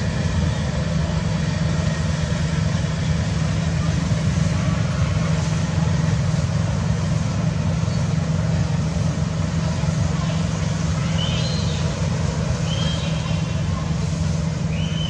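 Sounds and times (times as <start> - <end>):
vehicle engine rumbling: 0.0 - 15.0
faint high chirps: 11.0 - 12.0.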